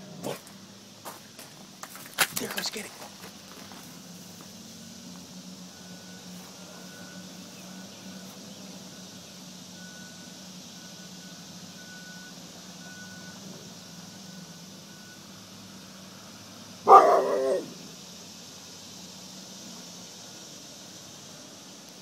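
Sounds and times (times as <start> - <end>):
faint high beeps: 5.7 - 13.4
dog barking: 16.8 - 17.8.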